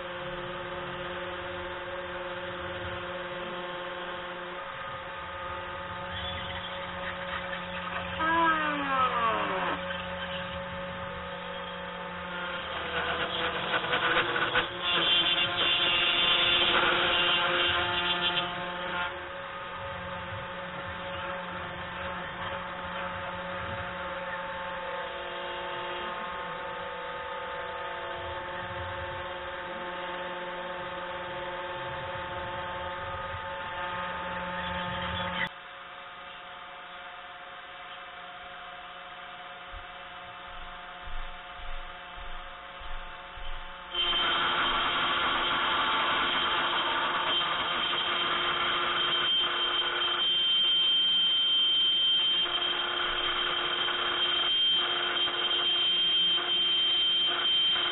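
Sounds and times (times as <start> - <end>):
cnc router motors humming: 0.0 - 36.4, 37.0 - 57.9.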